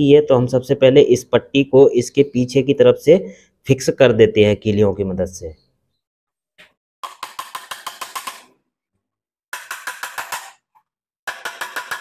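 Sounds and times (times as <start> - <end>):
hammer tapping nails into plywood: 7.0 - 8.5, 9.5 - 12.0.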